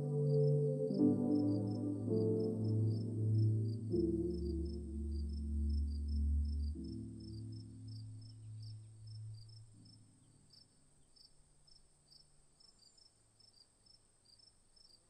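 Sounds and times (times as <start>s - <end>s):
soft background music: 0.0s - 10.1s
insect chirping: 1.2s - 15.0s.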